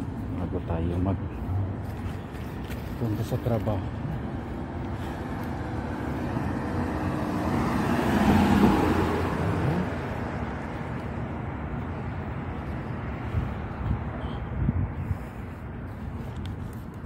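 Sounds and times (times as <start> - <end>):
low rumble of traffic: 0.0 - 17.0
car passing: 1.4 - 14.3.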